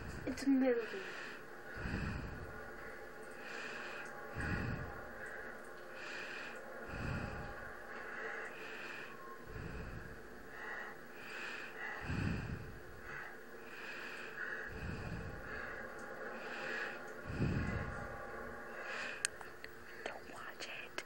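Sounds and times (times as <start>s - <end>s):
person breathing heavily: 0.0s - 20.5s
faint steady hum: 0.0s - 21.0s.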